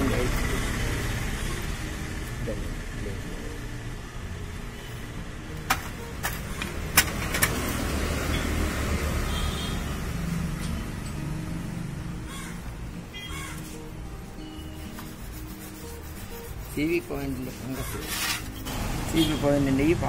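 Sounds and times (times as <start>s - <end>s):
cloth wiping parts: 14.7s - 18.6s.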